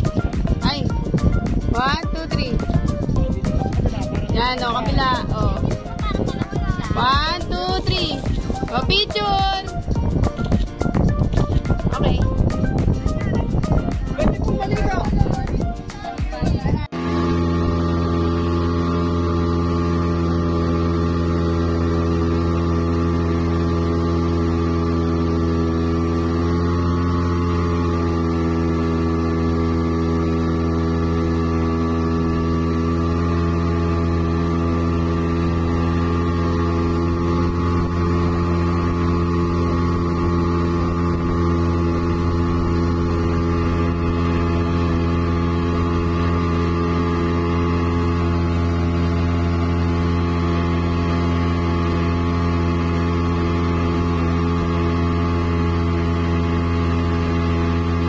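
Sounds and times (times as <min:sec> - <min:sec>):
boat wake rushing: 0:00.0 - 0:58.0
outboard motor droning: 0:00.0 - 0:58.0.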